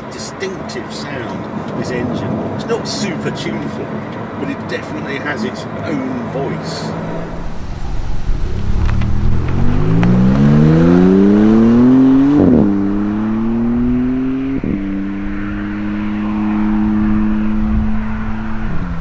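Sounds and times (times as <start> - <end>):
car engine accelerating hard: 6.8 - 19.0.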